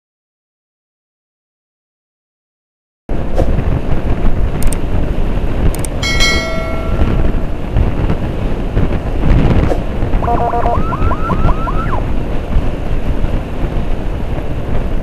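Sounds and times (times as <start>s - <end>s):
wind buffeting microphone: 3.1s - 15.0s
light clicks: 4.6s - 4.8s, 5.7s - 6.0s
ringing chime: 6.0s - 7.3s.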